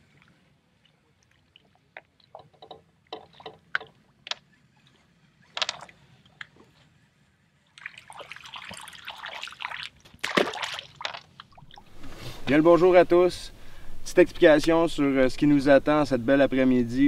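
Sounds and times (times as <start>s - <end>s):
water drips: 7.7s - 11.9s.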